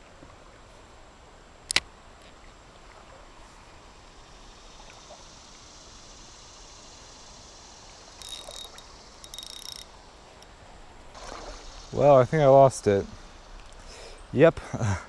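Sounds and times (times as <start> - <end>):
faint creek water: 0.0 - 15.0
fishing reel clicking whirs: 8.1 - 10.5.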